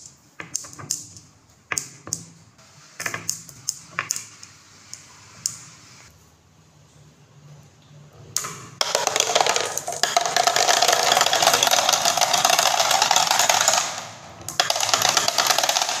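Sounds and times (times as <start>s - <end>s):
marbles rolling and clattering: 8.8s - 16.0s.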